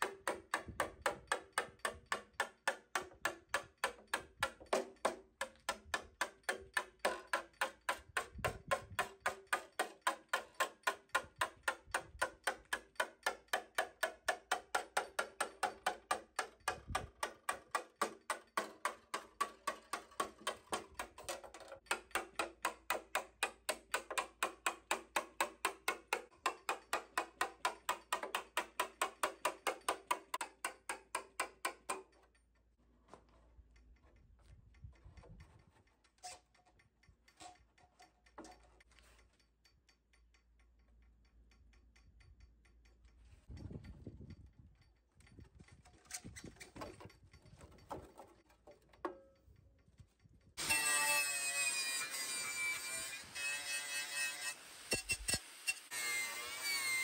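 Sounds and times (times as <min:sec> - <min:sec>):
hammer tapping chisel into metal: 0:00.0 - 0:32.7, 0:34.8 - 0:43.4.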